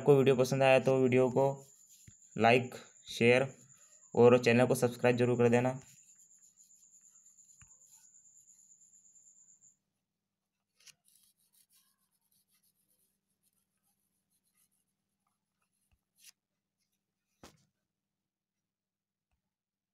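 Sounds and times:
stylus scratching on a screen: 0:00.1 - 0:09.7, 0:10.7 - 0:17.0.

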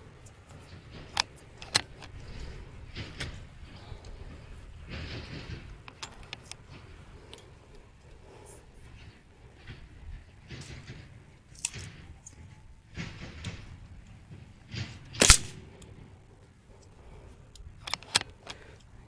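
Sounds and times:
light clicks: 0:15.1 - 0:19.0
air rifle shot: 0:15.2 - 0:15.7.

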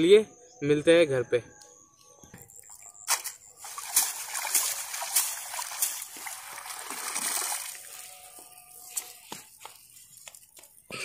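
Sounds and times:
net splashing in water: 0:02.6 - 0:09.3.

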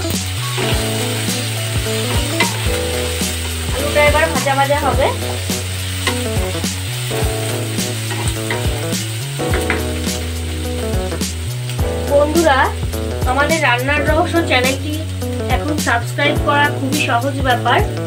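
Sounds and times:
potatoes sizzling in oil: 0:00.0 - 0:18.0
spatula scraping a pan: 0:08.0 - 0:08.8.

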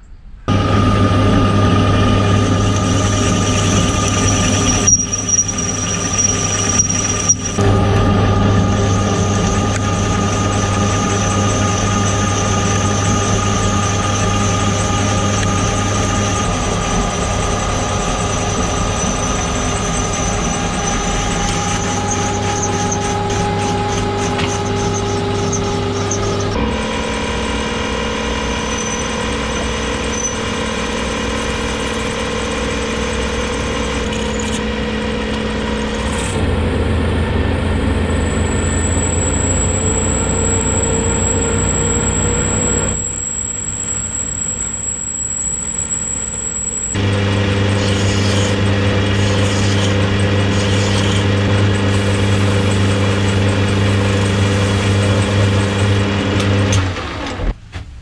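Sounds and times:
metal lathe drone with gear whine: 0:00.5 - 0:57.4
thin high whistle: 0:28.5 - 0:33.7, 0:38.2 - 0:47.0.

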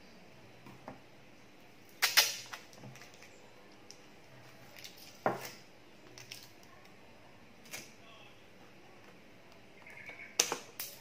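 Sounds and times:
adhesive tape ripping off roll: 0:01.9 - 0:02.7.

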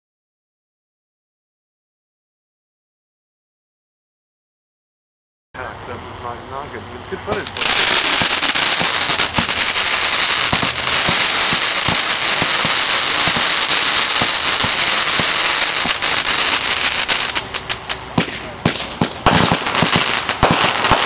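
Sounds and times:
fireworks hissing: 0:05.8 - 0:21.0
fireworks pops and crackles: 0:07.3 - 0:21.0.

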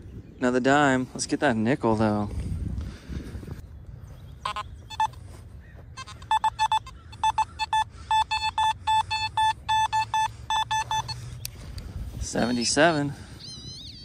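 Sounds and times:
metal detector beeps: 0:04.4 - 0:05.2, 0:06.0 - 0:11.6, 0:12.2 - 0:14.0.

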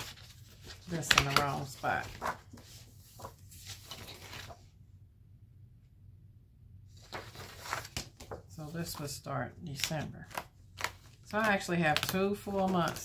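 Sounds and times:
paper pages rustling: 0:00.0 - 0:04.7, 0:06.9 - 0:13.0.

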